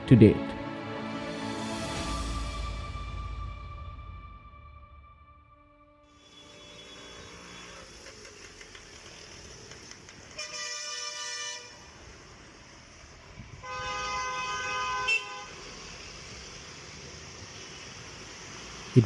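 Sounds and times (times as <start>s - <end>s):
vehicle horn blasts: 6.1s - 8.0s, 10.3s - 11.9s, 13.5s - 15.6s
traffic hiss: 6.1s - 19.0s.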